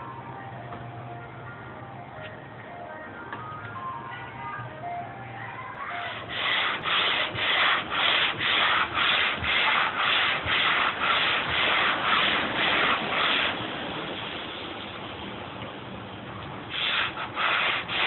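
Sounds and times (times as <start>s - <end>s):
sandpaper rubbing on wood: 6.0s - 13.6s, 16.7s - 18.0s.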